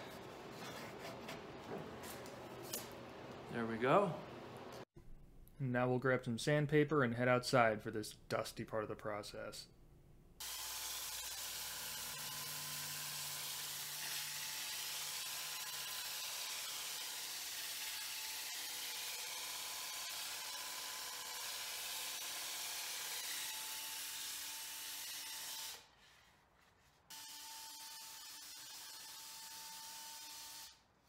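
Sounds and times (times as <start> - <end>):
drill running: 10.4 - 25.8.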